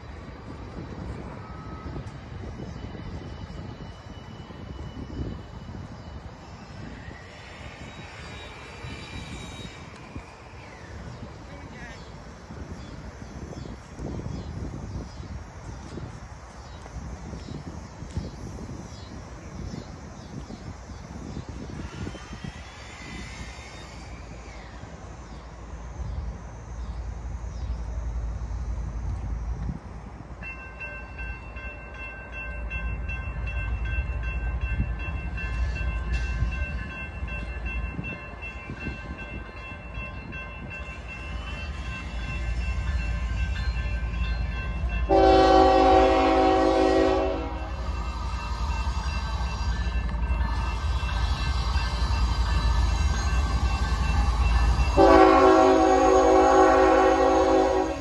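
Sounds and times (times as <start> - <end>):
wind buffeting microphone: 0.0 - 25.2, 28.3 - 31.7, 32.4 - 58.0
locomotive air horn blast: 45.1 - 47.8, 55.0 - 58.0.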